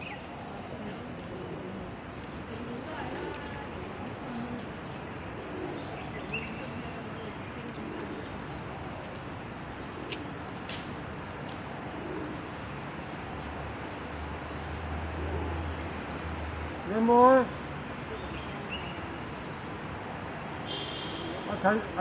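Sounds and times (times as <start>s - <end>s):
soft low animal calls: 0.7s - 6.2s.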